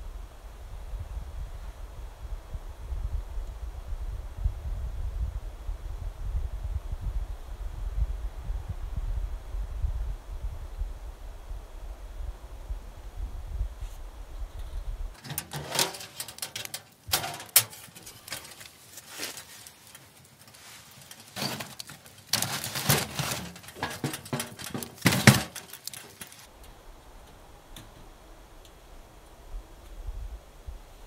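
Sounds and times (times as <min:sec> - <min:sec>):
wind rumble on microphone: 0:00.0 - 0:15.2, 0:26.5 - 0:31.0
log knocking against metal stove: 0:21.0 - 0:26.4.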